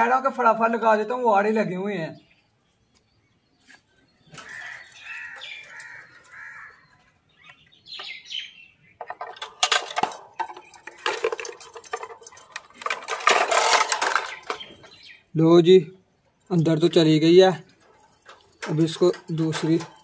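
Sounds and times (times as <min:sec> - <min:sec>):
wire cage rattling: 0:04.3 - 0:07.3, 0:09.0 - 0:15.3, 0:16.4 - 0:20.0.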